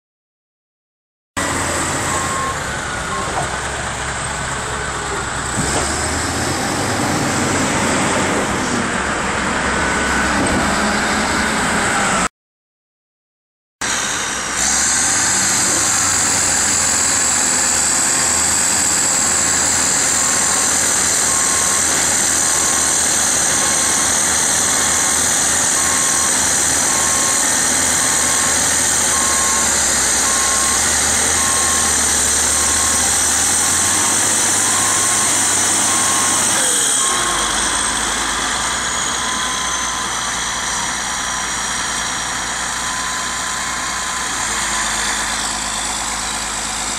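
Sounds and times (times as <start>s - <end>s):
reversing alarm beeping: 1.4s - 3.7s, 14.7s - 46.9s
bulldozer diesel engines running: 1.4s - 12.3s, 13.8s - 46.9s.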